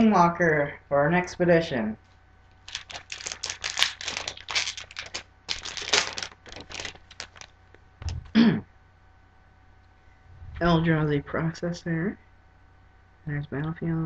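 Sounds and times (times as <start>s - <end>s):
foil wrapper crinkling and tearing: 2.6s - 7.6s
short low sound: 10.2s - 11.4s.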